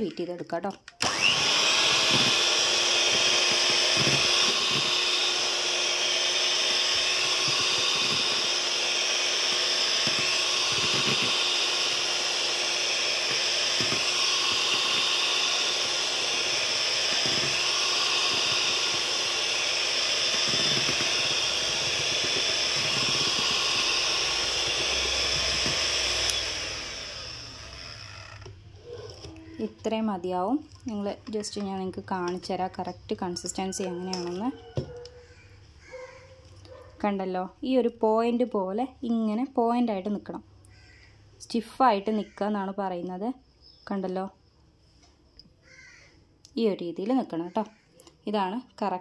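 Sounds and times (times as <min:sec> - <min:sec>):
electric hand mixer whining: 0:01.0 - 0:30.2, 0:31.1 - 0:36.1.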